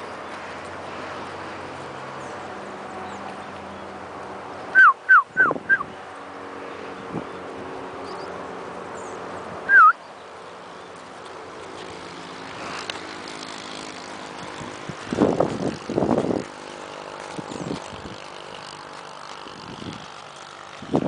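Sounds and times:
traffic hum: 0.0s - 21.0s
warbling whistle: 4.8s - 5.8s, 9.7s - 10.0s.

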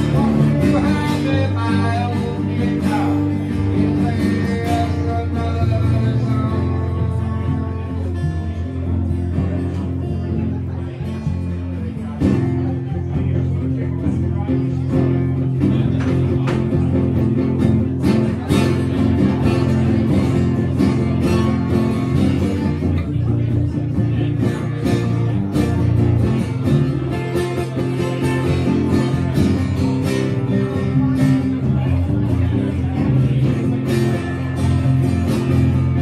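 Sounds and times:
acoustic guitars strumming: 0.0s - 36.0s.

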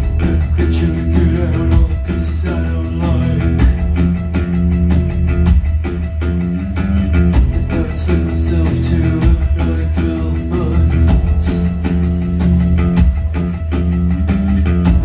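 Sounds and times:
bass line: 0.0s - 15.0s
guitar chords: 0.0s - 15.0s
keyboard chords: 0.0s - 15.0s
steady drum beat: 0.0s - 15.0s.

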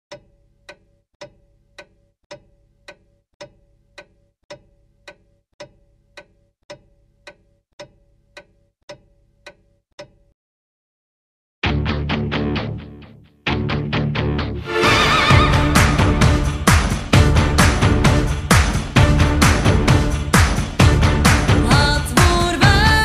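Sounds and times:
clock ticking: 0.1s - 10.4s.

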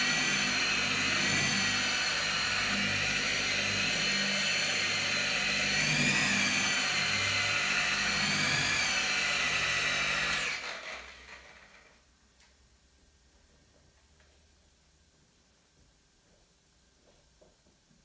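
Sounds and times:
electric polisher whining: 0.0s - 11.6s.

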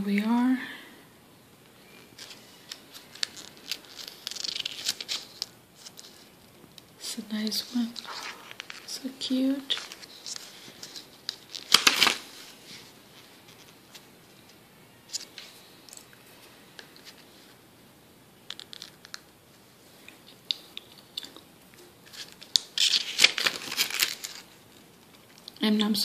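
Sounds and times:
paper pages rustling: 2.0s - 6.4s, 7.6s - 8.9s, 9.5s - 14.1s, 22.0s - 25.5s.

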